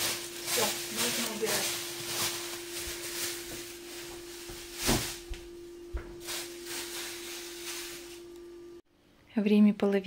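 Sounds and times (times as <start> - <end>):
plastic bags rustling: 0.0 - 5.5, 6.1 - 8.3
steady low hum: 0.0 - 9.3.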